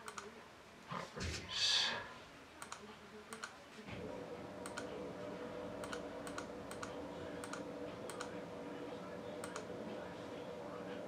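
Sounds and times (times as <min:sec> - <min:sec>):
computer mouse buttons clicking: 0:00.0 - 0:00.3, 0:02.6 - 0:03.6, 0:04.6 - 0:04.9, 0:05.8 - 0:08.3, 0:09.4 - 0:09.7
steady hum: 0:03.9 - 0:11.0.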